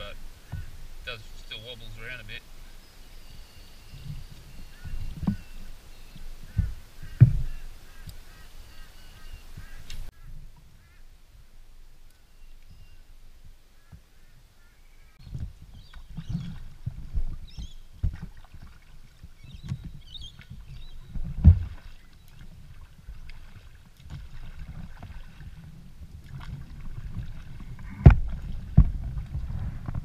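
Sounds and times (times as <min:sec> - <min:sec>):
paddle splashing water: 0:00.0 - 0:30.0
sharp wooden knocks: 0:06.5 - 0:07.6.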